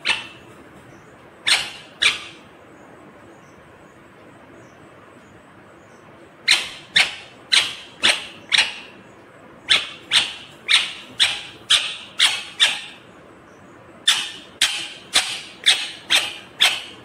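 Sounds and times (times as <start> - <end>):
parakeet sharp calls: 0.0 - 0.6, 1.4 - 2.5, 6.4 - 9.0, 9.6 - 13.2, 14.0 - 17.0.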